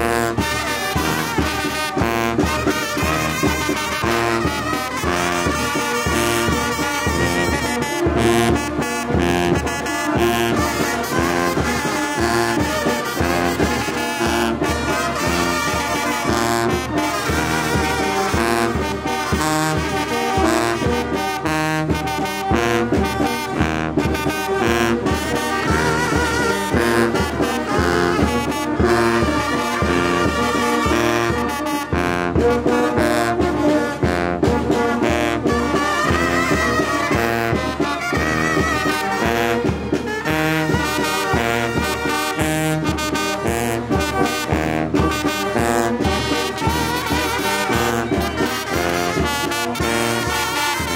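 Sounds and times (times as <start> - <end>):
brass band playing: 0.0 - 50.9.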